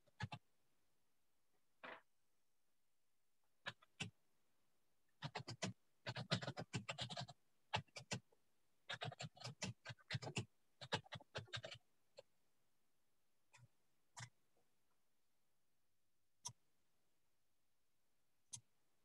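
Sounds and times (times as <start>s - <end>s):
faint computer keyboard typing: 0.0s - 0.4s, 3.6s - 4.2s, 5.2s - 8.3s, 8.9s - 12.3s, 13.5s - 14.4s.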